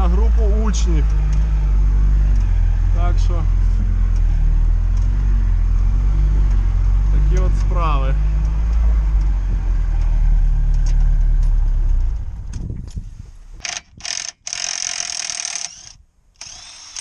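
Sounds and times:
vehicle engine rumbling: 0:00.0 - 0:14.7.

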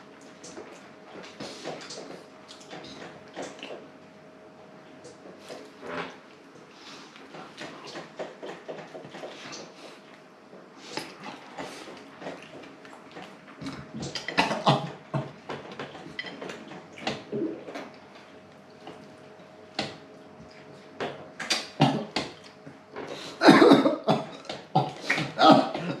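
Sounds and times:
throaty coughing bursts: 0:13.6 - 0:15.4, 0:21.4 - 0:22.3, 0:23.2 - 0:26.0.

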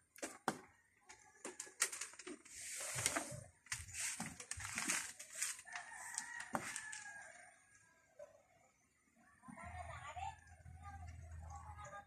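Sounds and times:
rustling noise: 0:01.5 - 0:07.3
rooster crowing: 0:05.4 - 0:07.7.

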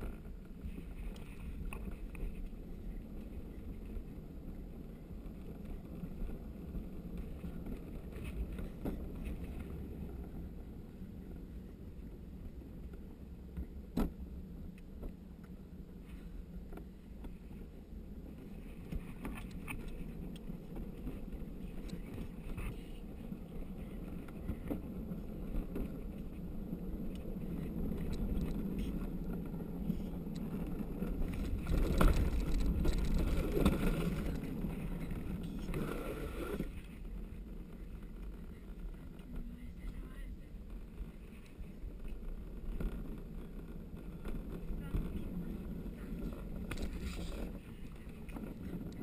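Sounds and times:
cart wheels rumbling on pavement: 0:00.0 - 0:49.0.

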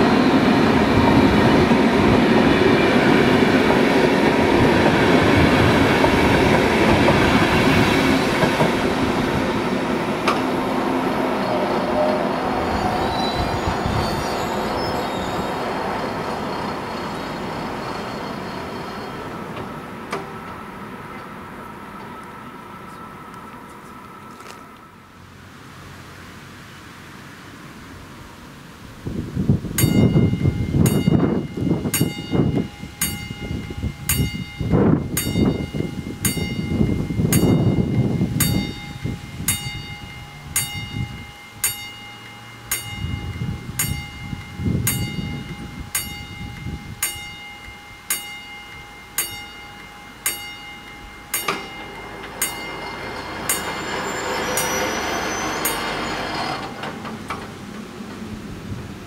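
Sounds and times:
level crossing bell ringing: 0:29.8 - 0:56.0.

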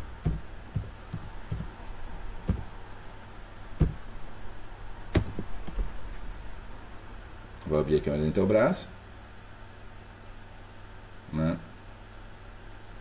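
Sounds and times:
steady low hum: 0:00.0 - 0:13.0
keyboard key taps: 0:00.2 - 0:01.7, 0:02.5 - 0:02.7, 0:03.8 - 0:04.0, 0:05.2 - 0:05.5.

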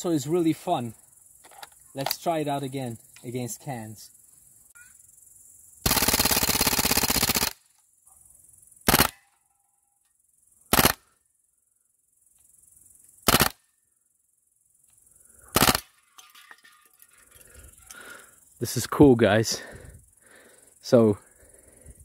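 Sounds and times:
bb rifle firing bursts: 0:05.8 - 0:07.6, 0:08.9 - 0:09.2, 0:10.7 - 0:11.0, 0:13.2 - 0:13.6, 0:15.5 - 0:15.9.

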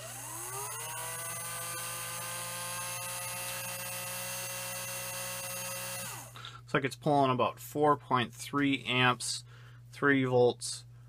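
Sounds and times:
small electric motor whine: 0:00.0 - 0:06.4.

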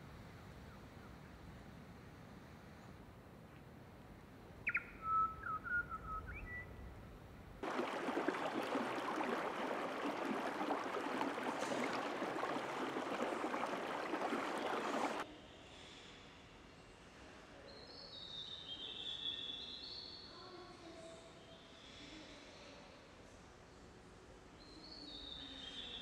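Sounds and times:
whistled bird calls: 0:04.6 - 0:06.8
running water rushing: 0:07.6 - 0:15.2.

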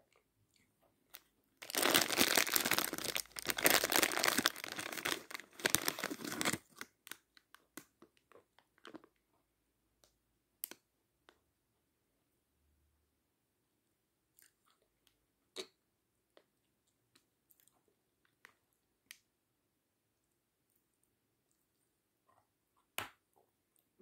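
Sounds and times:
plastic wrapper crinkling: 0:01.1 - 0:07.8.

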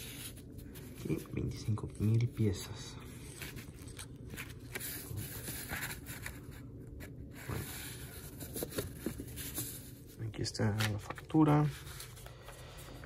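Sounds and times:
card rustling and scraping: 0:00.0 - 0:13.0.

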